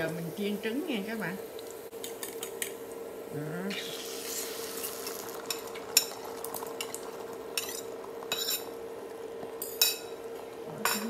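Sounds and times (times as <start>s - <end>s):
eggs sizzling in pan: 0.0s - 11.0s
steady hum: 0.0s - 11.0s.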